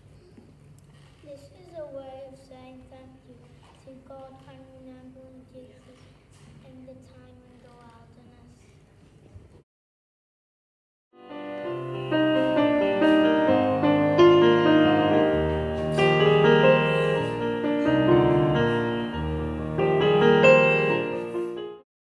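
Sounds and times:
piano music: 11.2s - 21.8s.

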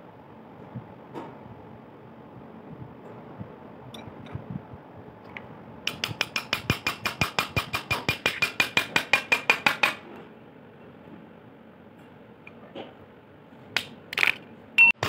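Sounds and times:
hammer tapping metal punch: 5.9s - 10.0s.

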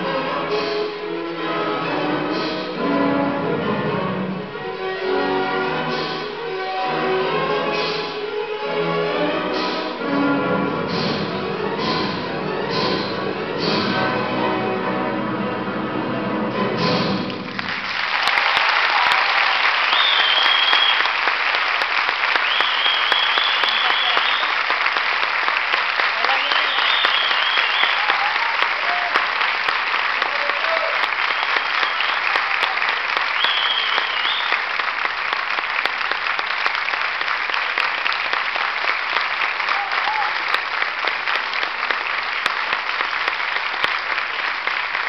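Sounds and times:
audience applauding: 17.3s - 45.0s
scattered cheers: 18.1s - 21.2s, 22.3s - 24.8s, 26.1s - 29.4s, 30.2s - 34.7s, 39.6s - 40.6s.

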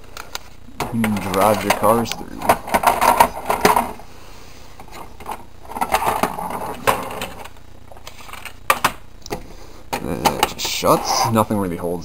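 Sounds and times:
plastic toy scraping: 10.9s - 11.4s.

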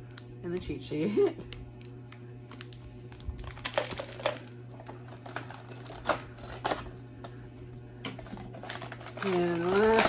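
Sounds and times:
packaging crinkling: 1.8s - 7.4s, 8.2s - 10.0s.

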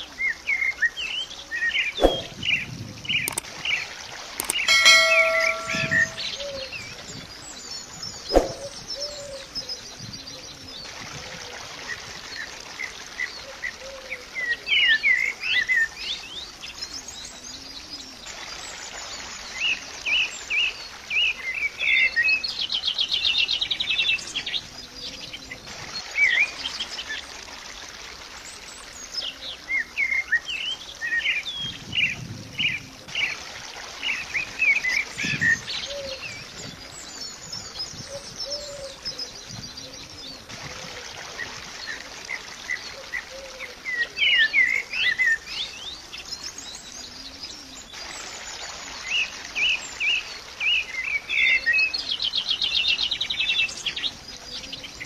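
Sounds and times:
small birds chirping: 0.4s - 10.7s
fast bird trill: 4.4s - 6.5s.

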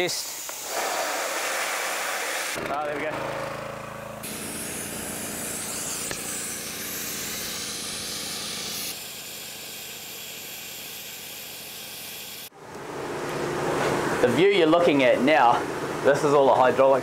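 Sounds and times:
sandblaster hissing on steel: 0.0s - 2.6s, 4.2s - 12.5s.

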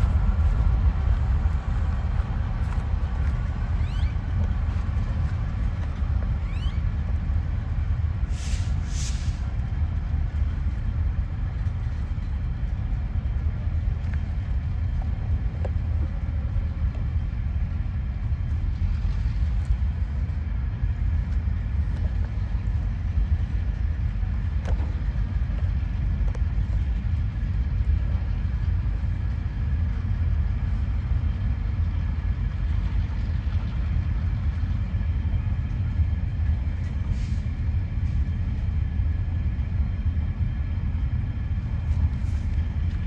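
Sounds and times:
low vehicle rumble: 0.0s - 43.0s
short hissy bursts: 8.3s - 9.4s.

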